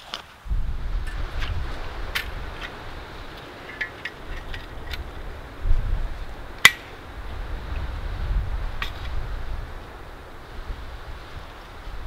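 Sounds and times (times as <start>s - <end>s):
wind buffeting microphone: 0.4s - 12.0s.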